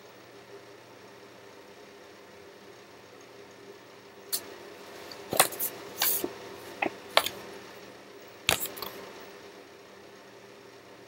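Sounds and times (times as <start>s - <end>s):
low background hum: 0.0s - 11.0s
paper cards rustling and tapping: 5.1s - 7.4s, 8.5s - 9.0s.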